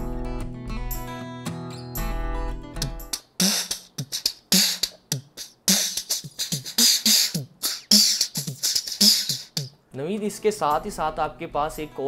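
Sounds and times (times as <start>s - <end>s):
background music: 0.0s - 5.0s, 5.8s - 12.0s
man beatboxing: 2.8s - 9.8s.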